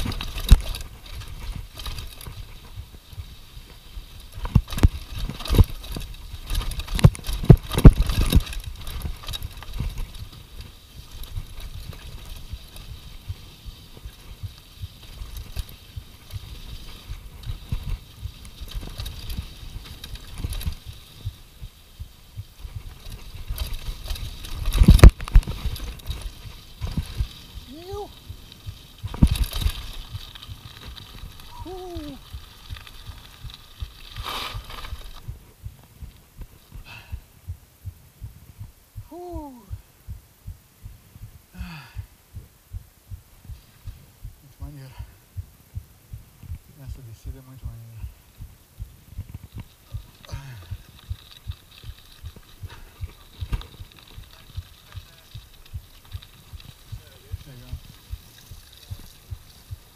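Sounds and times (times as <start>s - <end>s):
bike jolting over gravel: 0.0s - 37.1s, 49.2s - 59.9s.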